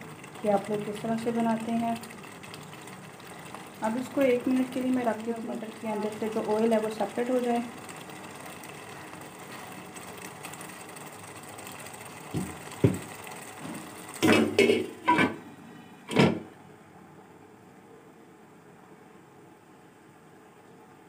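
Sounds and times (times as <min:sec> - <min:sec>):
pot simmering with faint sizzle: 0:00.0 - 0:17.0.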